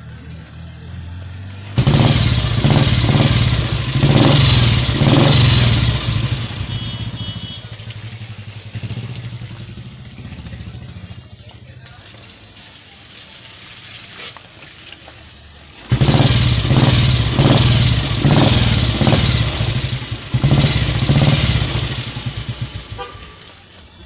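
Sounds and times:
motorcycle engine kick-started: 1.5s - 12.1s, 15.7s - 24.0s
motorcycle engine running loudly: 1.6s - 11.6s, 15.9s - 23.4s.

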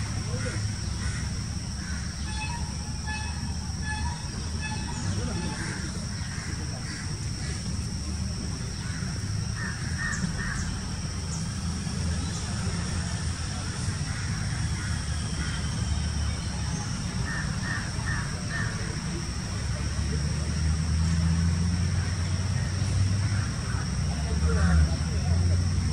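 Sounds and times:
bird harsh calls: 0.0s - 7.9s, 8.7s - 19.0s
steady low rumble: 0.0s - 21.0s.

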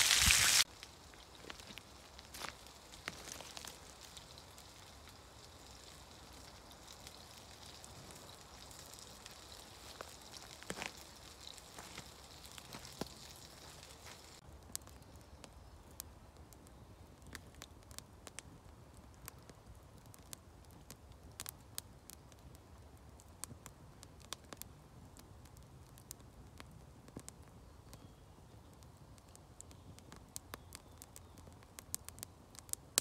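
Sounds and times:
faint hiss: 0.0s - 14.4s
campfire crackling and popping: 0.0s - 33.0s.

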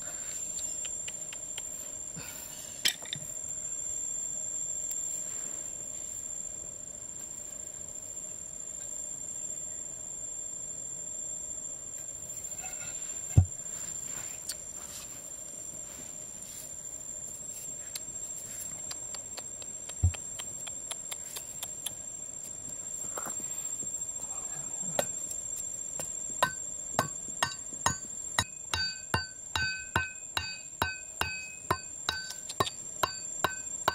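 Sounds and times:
sharp ringing knocks: 26.0s - 33.9s.

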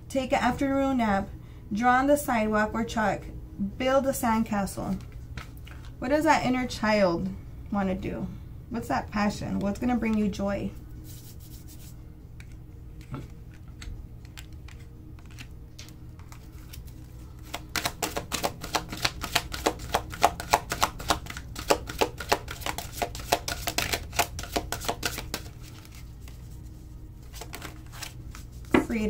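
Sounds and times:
cards being shuffled: 11.0s - 29.0s.

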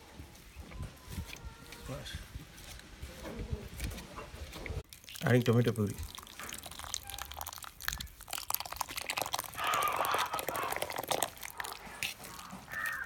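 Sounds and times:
wet squelching of stirred food: 2.6s - 13.0s.

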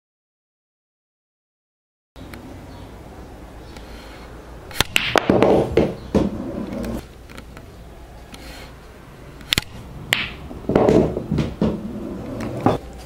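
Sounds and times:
cue ball clacking object ball: 4.8s - 7.0s, 9.5s - 12.8s
pool balls clicking: 4.8s - 7.7s, 9.4s - 12.8s
cue tip striking ball: 5.0s - 6.9s, 10.1s - 12.8s
balls rolling on cloth: 5.0s - 7.0s, 10.1s - 12.8s.

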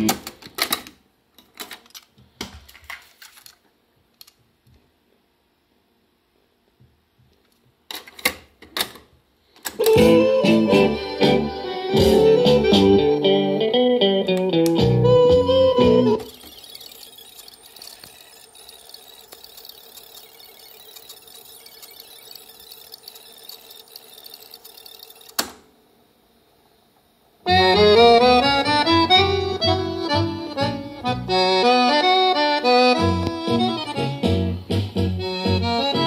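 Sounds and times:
tango music with accordion: 9.9s - 13.7s, 15.0s - 16.2s, 27.5s - 36.0s
garbled fast-forward tape chatter: 16.1s - 25.5s.

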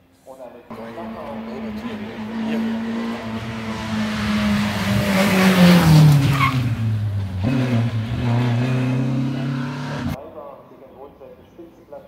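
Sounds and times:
race car engine passing: 0.7s - 10.2s
tyre squeal: 6.1s - 6.7s.

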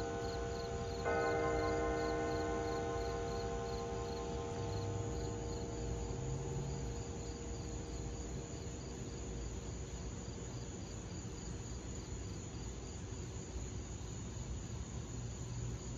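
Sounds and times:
church bell tone: 0.0s - 9.6s
crickets chirping: 0.0s - 15.9s.

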